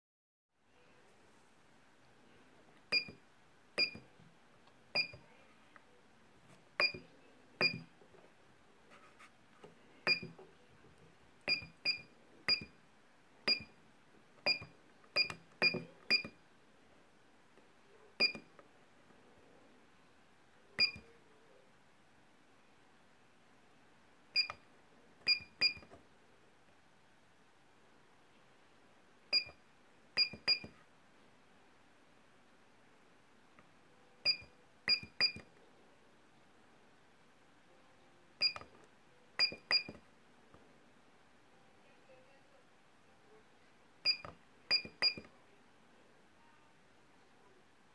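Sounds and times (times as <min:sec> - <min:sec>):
keypad beep with click: 0:02.9 - 0:03.2, 0:03.8 - 0:04.1, 0:05.0 - 0:05.2, 0:06.8 - 0:07.9, 0:10.0 - 0:10.4, 0:11.5 - 0:12.8, 0:13.5 - 0:13.8, 0:14.4 - 0:16.4, 0:18.2 - 0:18.5, 0:20.8 - 0:21.1, 0:24.4 - 0:24.6, 0:25.2 - 0:25.9, 0:29.3 - 0:29.6, 0:30.2 - 0:30.8, 0:34.2 - 0:35.5, 0:38.4 - 0:38.7, 0:39.4 - 0:40.0, 0:44.0 - 0:45.3.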